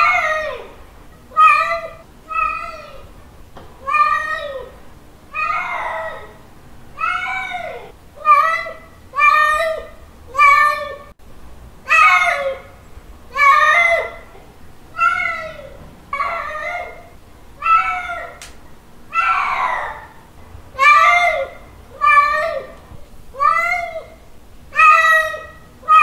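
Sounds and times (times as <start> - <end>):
cat meowing: 1.3 - 3.0, 3.8 - 6.4, 7.0 - 11.1, 15.0 - 18.5, 19.1 - 20.1, 23.4 - 26.0.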